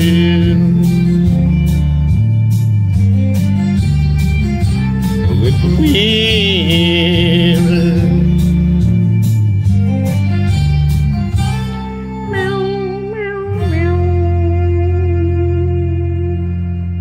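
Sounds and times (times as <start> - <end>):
steel guitar sliding notes: 0.0 - 16.9
country ballad: 0.0 - 17.0.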